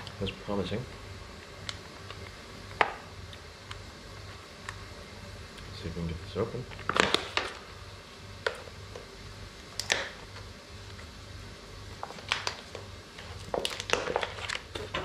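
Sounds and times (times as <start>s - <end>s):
steady low hum: 0.0s - 15.0s
package crinkling: 6.8s - 7.6s, 11.9s - 15.0s.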